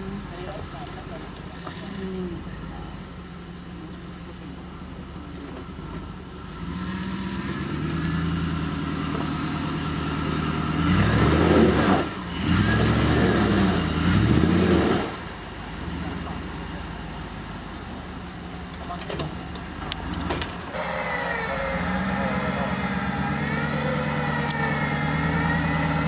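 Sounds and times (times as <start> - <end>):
engine revving under load: 0.0 - 17.7, 18.9 - 26.0.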